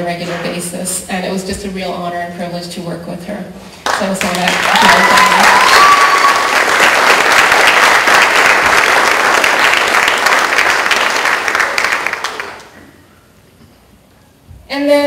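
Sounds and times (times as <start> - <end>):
audience applauding: 3.9 - 12.8.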